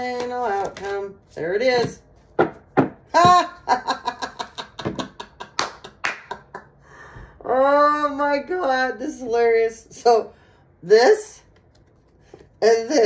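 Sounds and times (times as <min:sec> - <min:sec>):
woman laughing: 0:03.1 - 0:06.8.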